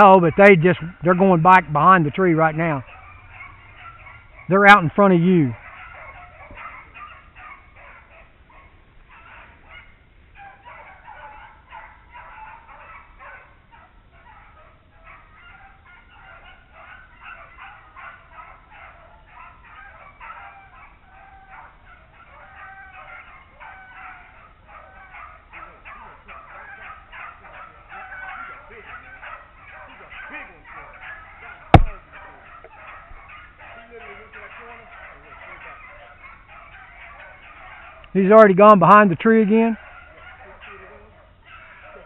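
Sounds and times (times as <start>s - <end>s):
dogs baying: 0.0s - 42.0s.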